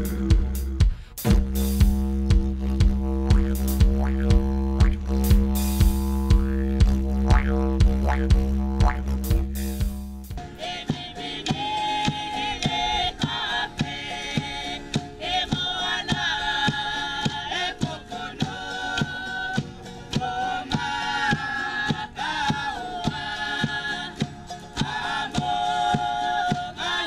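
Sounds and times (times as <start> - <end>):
percussion beat: 0.0 - 27.0
group singing a chant: 10.5 - 27.0.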